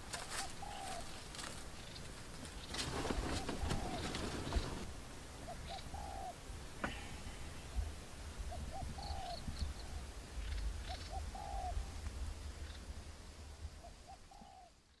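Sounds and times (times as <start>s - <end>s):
dove cooing: 0.1s - 1.5s, 2.8s - 6.4s, 8.4s - 9.5s, 10.8s - 11.8s, 13.8s - 14.8s.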